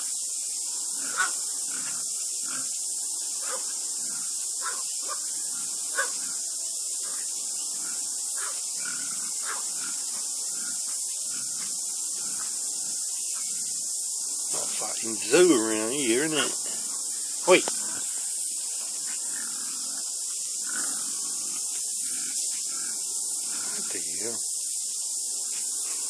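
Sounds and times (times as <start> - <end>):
steady high hiss: 0.0 - 26.0.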